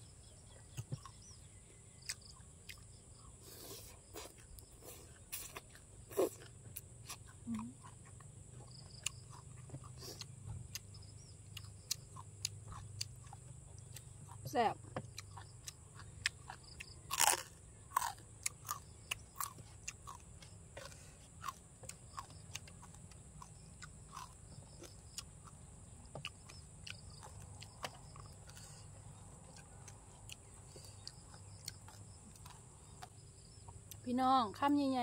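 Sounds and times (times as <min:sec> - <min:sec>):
crispy chewing crunches: 0:00.2 - 0:34.6.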